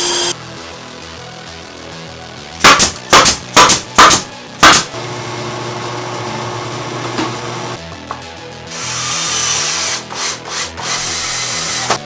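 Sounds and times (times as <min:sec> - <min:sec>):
drill press humming: 0:00.0 - 0:00.4
nail gun firing: 0:02.6 - 0:04.9.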